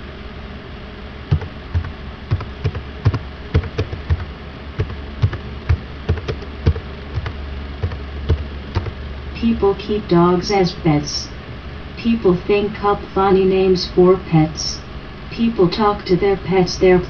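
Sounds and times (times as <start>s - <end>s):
steady low hum: 0.0s - 17.0s
computer keyboard typing: 1.3s - 9.0s.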